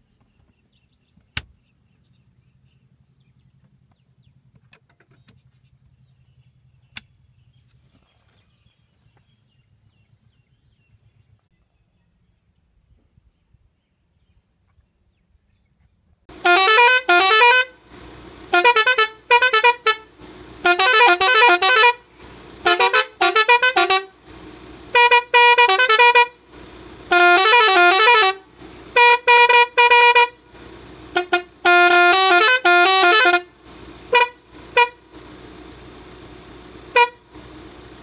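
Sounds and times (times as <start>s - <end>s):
musical air horn blasts: 16.3s - 35.4s, 36.8s - 37.5s.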